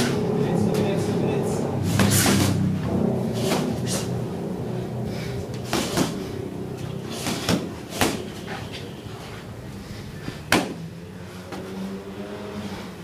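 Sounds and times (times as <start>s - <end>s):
boxing punches landing: 1.9s - 2.6s, 5.5s - 6.2s, 7.1s - 8.5s, 10.5s - 10.8s.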